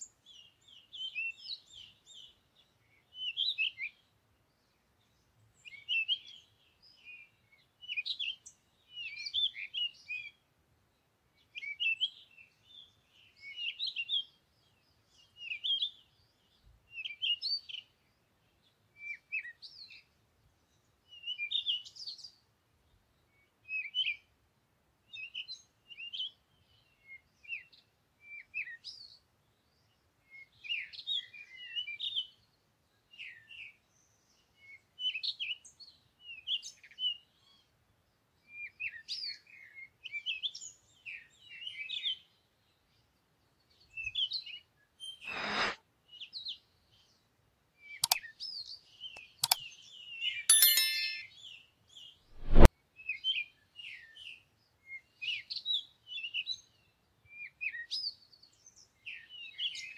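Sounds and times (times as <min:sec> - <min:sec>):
small birds chirping: 0:00.0 - 0:10.4, 0:25.1 - 0:59.9.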